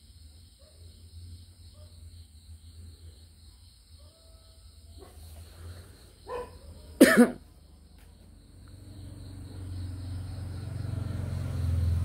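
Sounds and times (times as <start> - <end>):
crickets trilling: 0.0 - 12.0
man coughing: 7.0 - 7.4
throat clearing sound: 7.0 - 7.4.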